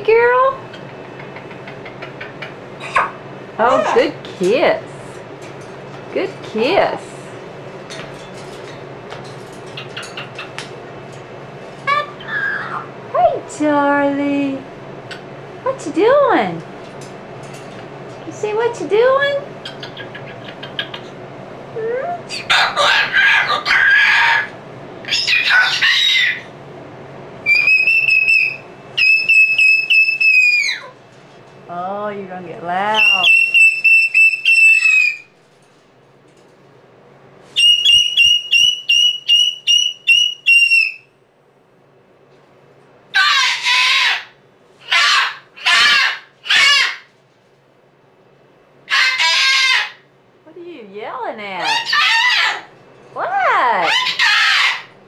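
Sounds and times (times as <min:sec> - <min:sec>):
cockatoo screeching: 0:11.8 - 0:12.9, 0:22.3 - 0:26.5, 0:27.5 - 0:31.0, 0:33.0 - 0:35.3, 0:37.6 - 0:41.0, 0:43.1 - 0:47.1, 0:48.9 - 0:50.1, 0:51.6 - 0:52.7, 0:53.7 - 0:55.0.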